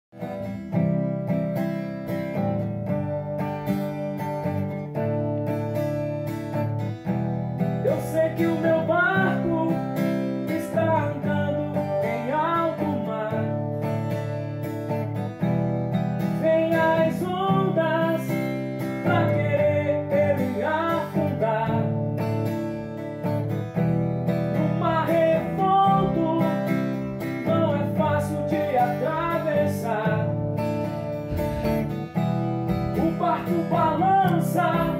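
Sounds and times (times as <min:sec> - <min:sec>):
acoustic guitar strumming chords: 0:00.1 - 0:34.9
person singing: 0:07.8 - 0:13.7, 0:16.3 - 0:22.2, 0:24.5 - 0:30.5, 0:32.8 - 0:34.9.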